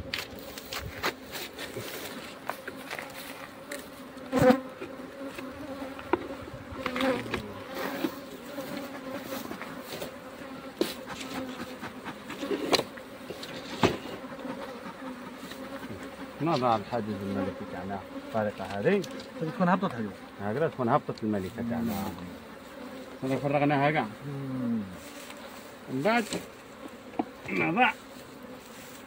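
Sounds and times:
honeybees buzzing: 0.0s - 29.0s
wooden hive frames knocking: 26.2s - 27.8s.

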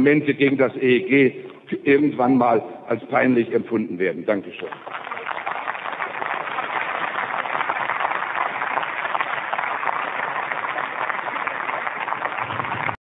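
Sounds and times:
crowd applauding: 4.5s - 13.0s.

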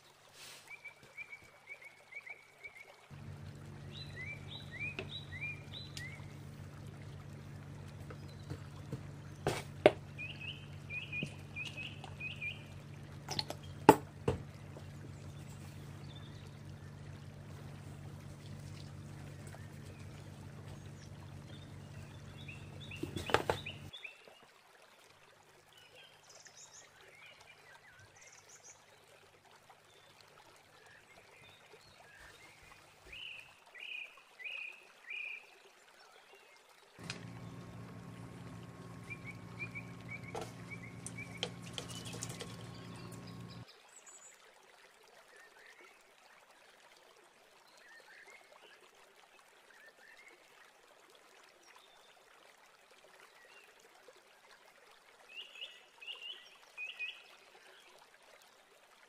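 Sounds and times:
foamy water trickling and fizzing: 0.0s - 59.0s
steady low hum: 3.1s - 23.9s, 37.0s - 43.7s
bird chirps: 3.8s - 6.4s, 9.4s - 13.9s, 19.2s - 24.0s, 37.0s - 43.6s
sharp knocks: 13.3s - 14.5s.

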